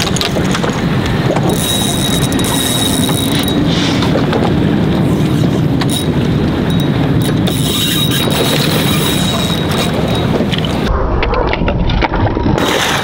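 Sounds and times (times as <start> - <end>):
water noise: 0.0 - 13.0
wind: 0.0 - 13.0
fishing reel drag buzzing: 1.5 - 3.6, 5.9 - 10.3.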